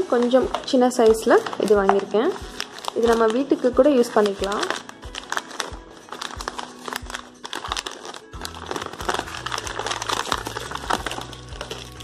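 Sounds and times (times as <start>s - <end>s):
paper and plastic crinkling: 0.0s - 12.0s
background music with beat: 4.8s - 12.0s.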